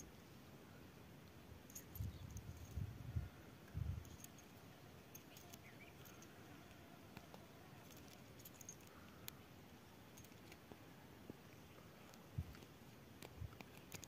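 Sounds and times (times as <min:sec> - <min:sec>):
padlock and keys clicking: 0:05.1 - 0:06.4, 0:07.2 - 0:09.3, 0:10.2 - 0:10.6.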